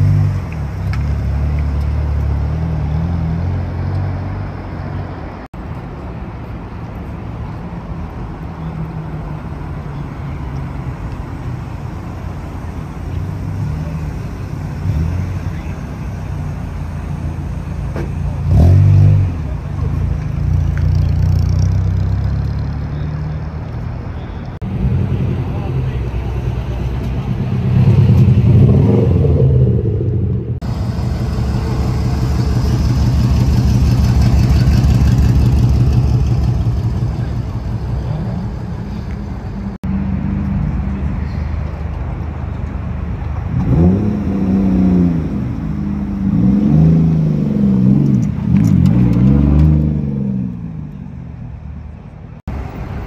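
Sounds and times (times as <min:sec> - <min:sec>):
car engines rumbling: 0:00.0 - 0:53.0
engine revving: 0:18.3 - 0:19.9, 0:24.6 - 0:38.4, 0:43.5 - 0:50.6.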